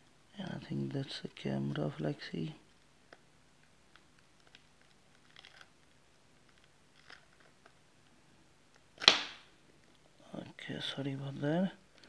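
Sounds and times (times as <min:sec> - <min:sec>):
glass crackling and scraping: 0:04.4 - 0:05.8.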